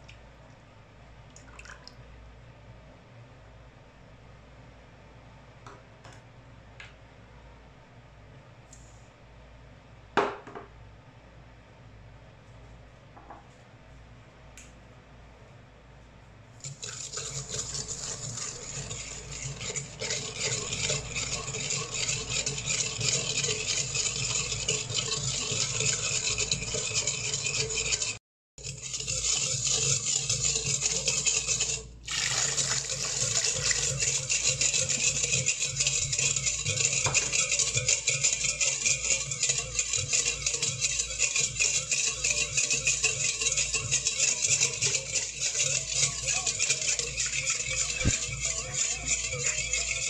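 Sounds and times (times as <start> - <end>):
wire whisk beating in metal bowl: 16.6 - 50.0.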